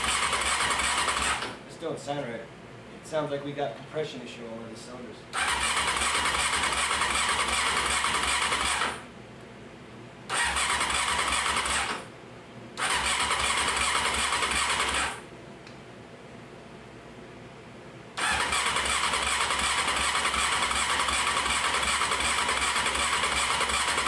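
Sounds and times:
motorcycle engine cranking: 0.0 - 1.6, 5.4 - 9.0, 10.3 - 12.0, 12.8 - 15.2, 18.2 - 24.0.

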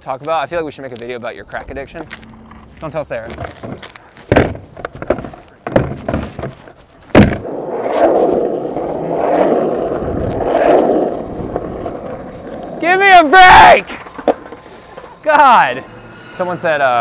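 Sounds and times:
skateboard wheels rolling on asphalt: 0.1 - 15.8
skateboard clacking on street: 3.3 - 15.2
skateboard knocks: 3.4 - 7.5.

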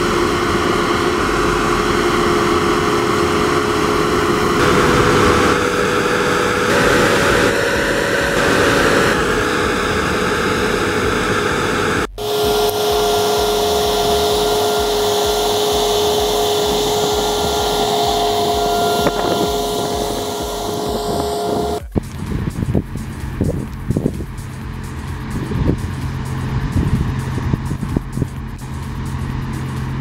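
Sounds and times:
combine harvester engine and threshing: 0.0 - 30.0
high-pitched machinery whine: 0.0 - 30.0.

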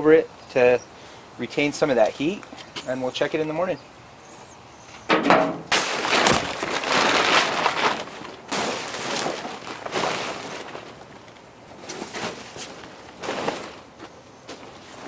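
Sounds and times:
plastic tarps rustling: 5.7 - 15.0.

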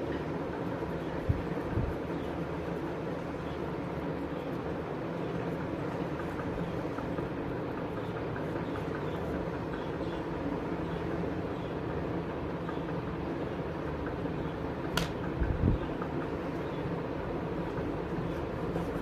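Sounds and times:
faint hum: 0.0 - 19.0
low mechanical rumble: 0.0 - 19.0
sharp click: 14.9 - 15.3.

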